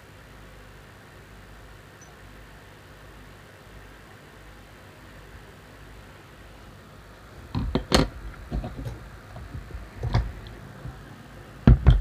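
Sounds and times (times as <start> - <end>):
loud knocks: 11.6 - 12.0.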